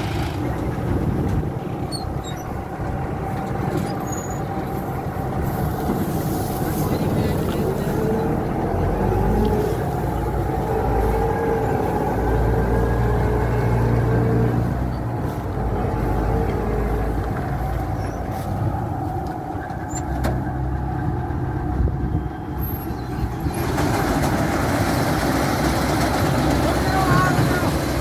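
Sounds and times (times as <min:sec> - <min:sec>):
harvester diesel engine droning: 0:00.0 - 0:28.0.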